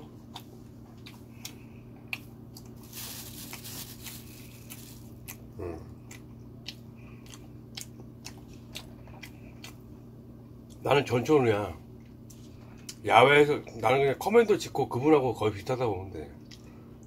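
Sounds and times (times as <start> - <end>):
person chewing sticky food: 0.0 - 10.9, 16.4 - 17.0
steady low hum: 0.0 - 17.0
person humming: 5.6 - 6.0.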